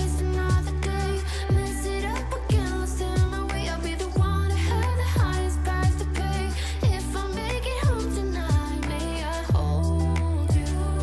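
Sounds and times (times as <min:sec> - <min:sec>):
song with steady beat: 0:00.0 - 0:11.0
deep kick drum sweeping down: 0:01.5 - 0:01.8, 0:02.5 - 0:03.5, 0:04.2 - 0:04.5, 0:09.5 - 0:09.8.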